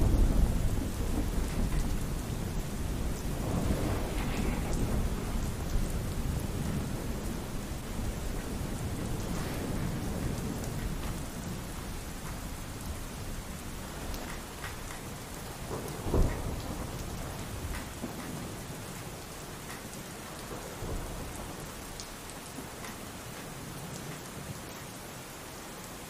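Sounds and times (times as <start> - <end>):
thunder rumble: 0.0 - 19.0, 20.3 - 22.0
pouring rain: 0.0 - 26.0.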